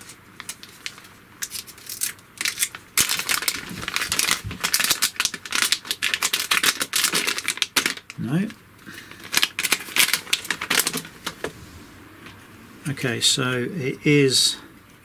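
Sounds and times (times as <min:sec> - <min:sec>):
plastic bag crinkling: 0:00.0 - 0:08.3, 0:08.9 - 0:11.5.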